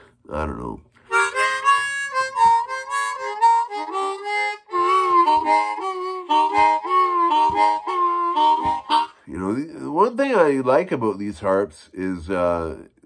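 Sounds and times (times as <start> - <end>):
harmonica blues run: 1.1 - 9.3.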